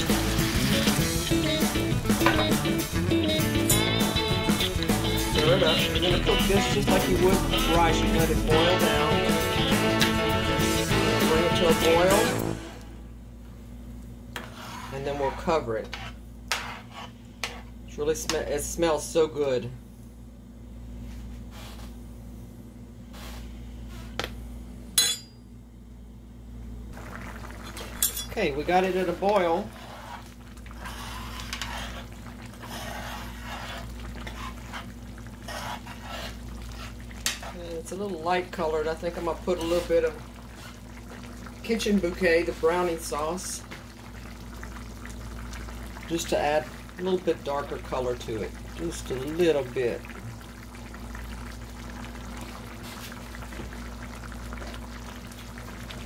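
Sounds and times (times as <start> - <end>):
pot boiling with bubbling pops: 0.0 - 7.9, 26.9 - 56.0
low steady hum: 0.0 - 56.0
spoon stirring in pot sloshing: 27.0 - 44.1.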